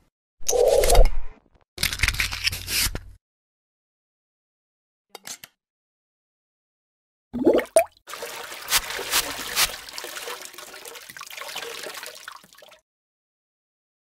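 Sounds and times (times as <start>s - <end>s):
liquid splashing and trickling: 7.4s - 12.8s.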